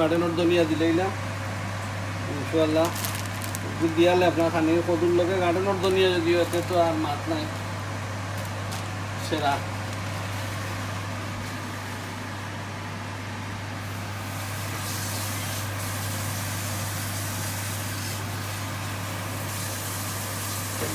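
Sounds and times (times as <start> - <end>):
gas cooker hissing: 13.8 - 20.9.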